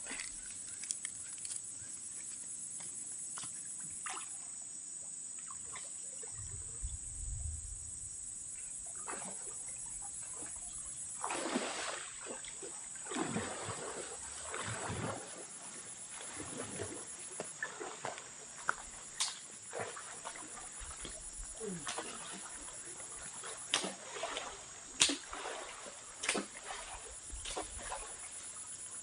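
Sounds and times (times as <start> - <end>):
high insect drone: 0.0 - 29.0
water sloshing and splashing: 3.8 - 4.5, 8.8 - 29.0
water swishes: 8.8 - 29.0.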